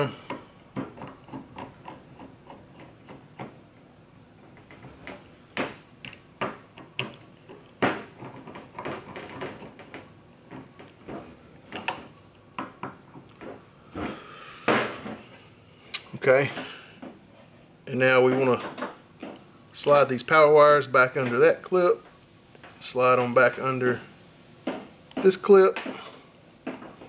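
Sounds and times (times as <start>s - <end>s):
clicks and knocks of parts: 4.4s - 13.6s.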